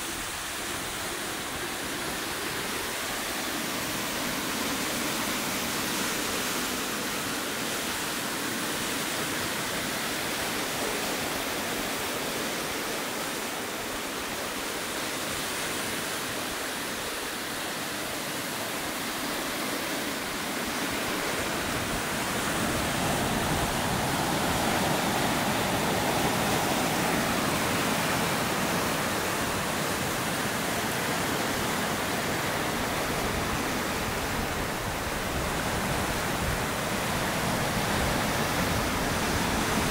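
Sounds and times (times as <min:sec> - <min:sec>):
surf breaking over rocks: 0:18.7 - 0:39.9.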